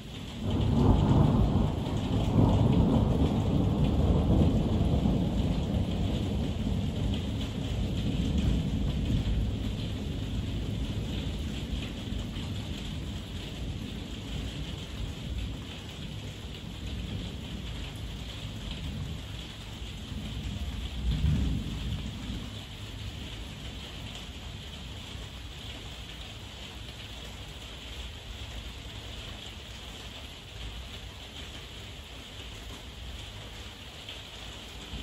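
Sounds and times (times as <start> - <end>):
heavy rain falling: 0.0 - 35.0
low thunder rumbling: 0.4 - 25.0.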